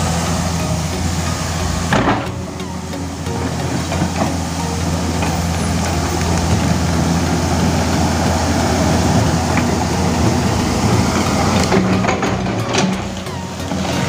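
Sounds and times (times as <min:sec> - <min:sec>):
excavator diesel engine running: 0:00.0 - 0:14.0.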